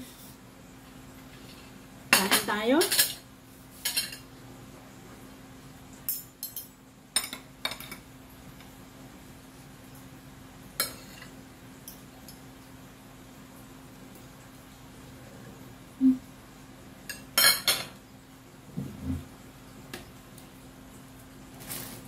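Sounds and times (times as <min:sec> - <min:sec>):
cutlery clinking on a plate: 0:03.8 - 0:04.2, 0:17.1 - 0:18.0.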